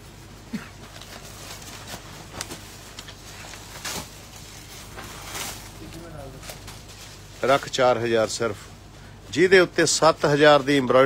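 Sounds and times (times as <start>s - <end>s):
fabric rustling: 0.8s - 7.7s.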